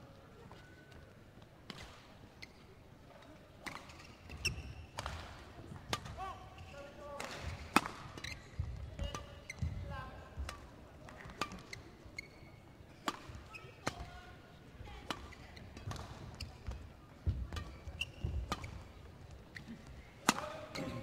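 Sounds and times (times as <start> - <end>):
shoes squeaking on court floor: 0.4 - 5.2, 6.5 - 14.2, 15.1 - 21.0
rackets hitting shuttlecock: 3.6 - 6.2, 7.2 - 9.8, 10.4 - 11.9, 13.0 - 14.1, 15.0 - 21.0.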